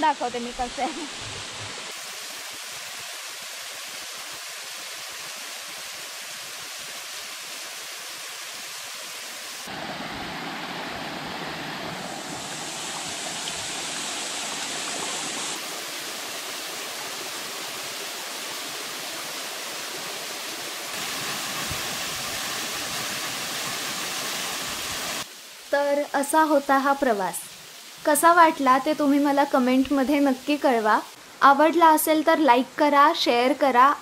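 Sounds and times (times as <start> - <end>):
water splashing over stones: 9.6 - 25.7.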